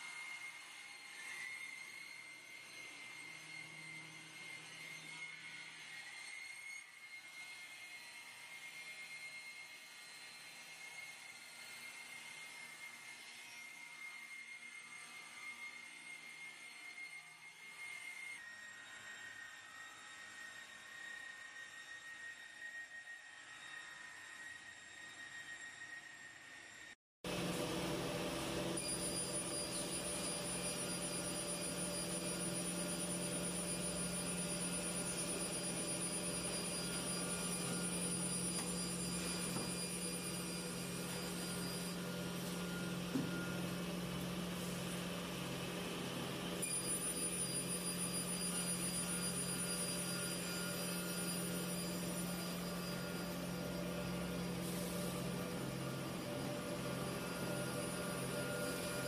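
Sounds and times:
milling machinery humming: 0:27.3 - 0:59.0.

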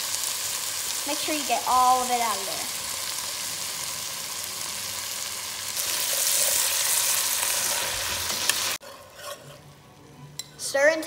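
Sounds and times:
meat and vegetables sizzling: 0:00.0 - 0:10.0
spoon stirring in pot: 0:08.3 - 0:09.8.

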